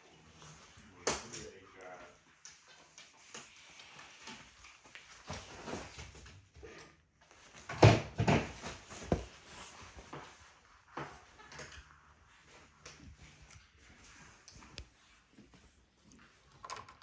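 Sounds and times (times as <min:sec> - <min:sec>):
bedding rustling: 0:03.0 - 0:06.5, 0:07.2 - 0:16.4.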